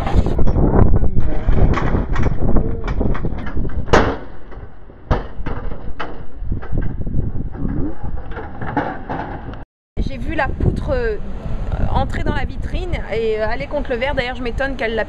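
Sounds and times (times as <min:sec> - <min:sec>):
metal sign falling with bang: 0:03.4 - 0:06.9.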